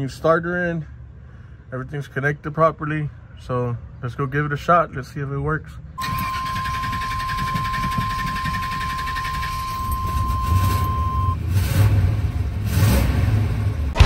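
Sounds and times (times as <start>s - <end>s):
high warning tone: 6.0s - 11.4s
truck engine starting: 6.0s - 14.0s.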